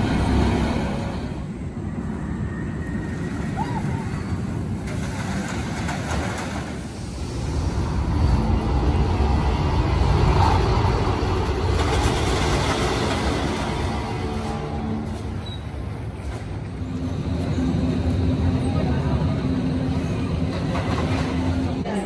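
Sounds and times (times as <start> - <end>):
roller coaster wheels rumbling: 0.0 - 22.0.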